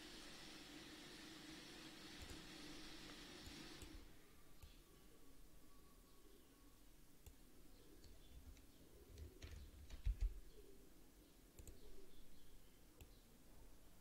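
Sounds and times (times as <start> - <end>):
computer mouse clicking: 8.0 - 10.4, 11.6 - 11.8.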